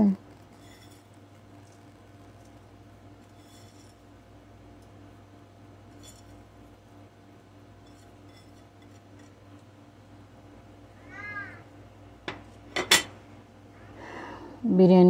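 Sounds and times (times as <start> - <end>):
low steady hum: 0.0 - 15.0
plate clinking against pot: 12.3 - 13.2.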